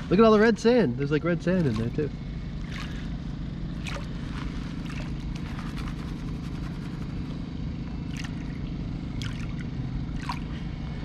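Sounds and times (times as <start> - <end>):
low hum: 0.0 - 11.0
water sloshing and trickling: 0.0 - 11.0
small splashes: 1.5 - 7.1, 8.0 - 10.7.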